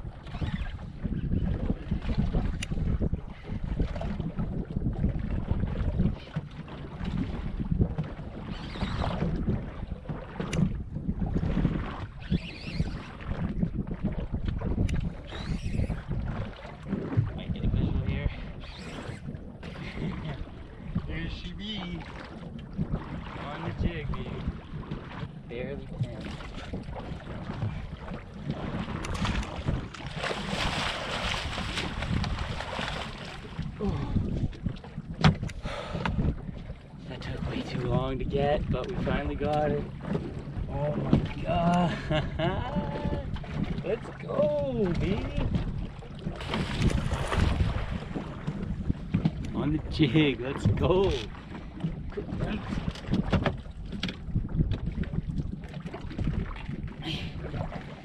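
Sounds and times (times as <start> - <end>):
water lapping against boat hull: 0.0 - 58.0
wind buffeting microphone: 0.0 - 58.0
lake chop: 7.9 - 17.5, 21.8 - 58.0
fish thrashing and splashing: 26.2 - 34.7, 44.9 - 48.8.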